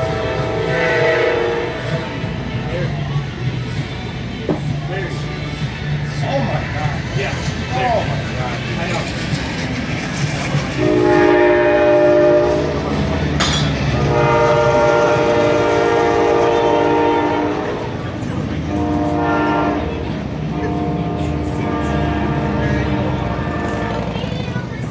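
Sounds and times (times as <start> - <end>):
locomotive air horn: 0.0 - 2.3, 10.8 - 24.4
train rumbling: 0.0 - 24.9.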